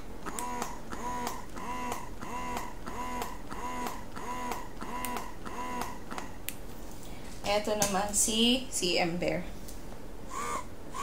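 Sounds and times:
breast pump motor whirring: 0.0 - 6.5, 10.3 - 11.0.

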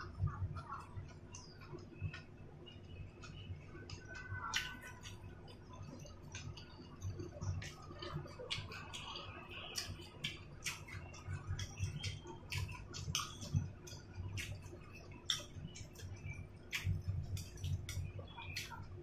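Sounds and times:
wet chewing mouth smacks: 6.3 - 18.8.

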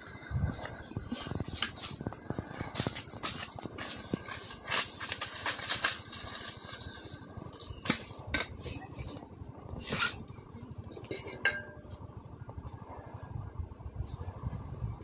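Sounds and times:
dry leaves crunching underfoot: 1.6 - 8.2
metal pot clinking: 11.0 - 11.8.

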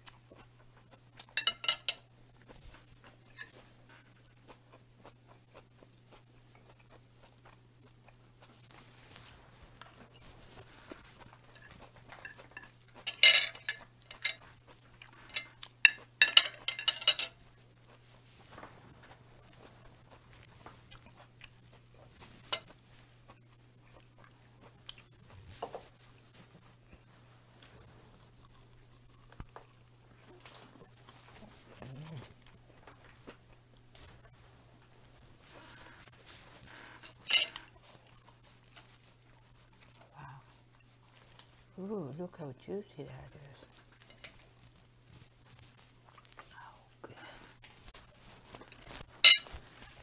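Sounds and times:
fork and knife clinking on plate: 1.4 - 2.0, 11.5 - 14.4, 15.3 - 17.4, 37.0 - 37.7, 49.2 - 49.6.

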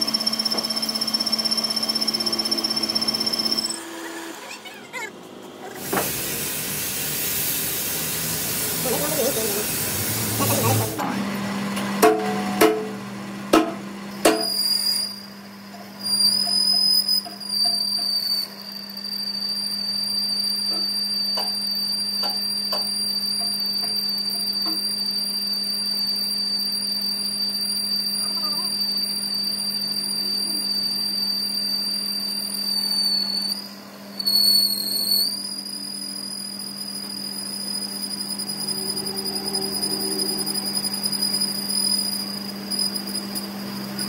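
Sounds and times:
high-pitched cutting whine: 0.0 - 11.4, 14.1 - 44.0
lathe motor hum: 0.0 - 11.6.

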